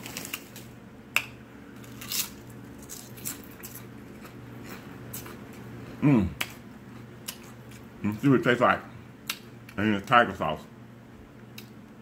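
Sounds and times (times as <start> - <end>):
chewing crunchy chips: 1.8 - 7.9.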